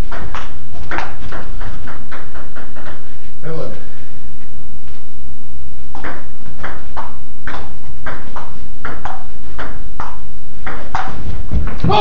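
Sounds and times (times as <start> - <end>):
ping pong ball bouncing on table: 0.0 - 3.1, 5.9 - 12.0
ping pong ball hitting paddles: 0.0 - 3.1, 5.9 - 12.0.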